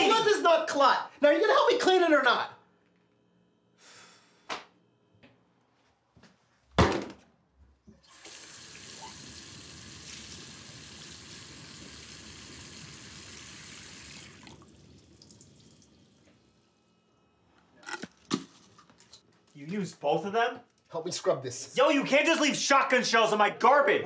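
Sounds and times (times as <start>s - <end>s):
faucet running water into sink: 8.0s - 16.3s.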